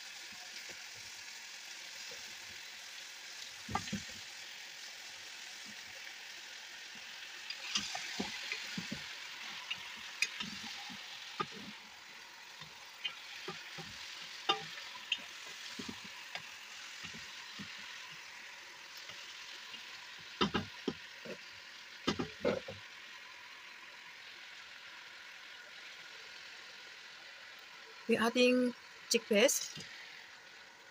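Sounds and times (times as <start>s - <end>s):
meat sizzling in hot oil: 0.0s - 30.9s.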